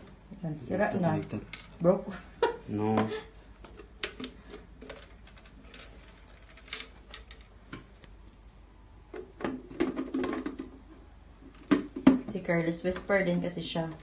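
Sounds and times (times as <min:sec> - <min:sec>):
plastic parts clicking and knocking: 0:03.0 - 0:07.9, 0:09.1 - 0:10.8, 0:11.5 - 0:12.4.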